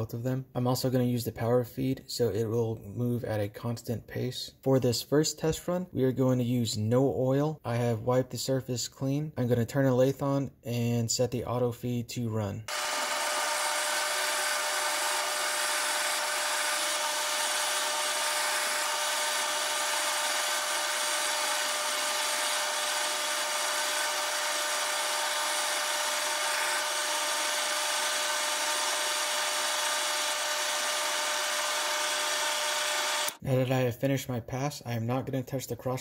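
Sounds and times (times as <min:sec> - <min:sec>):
metal lathe cutting whine: 0:12.7 - 0:33.4.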